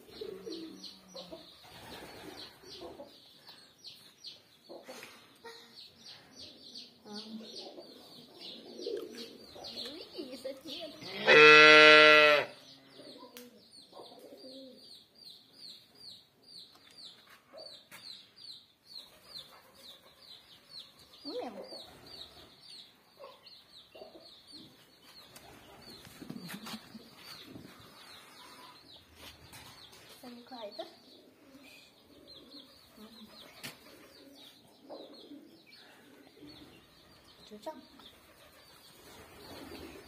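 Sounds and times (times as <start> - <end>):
birds peeping: 0.0 - 40.0
cow mooing: 11.1 - 12.5.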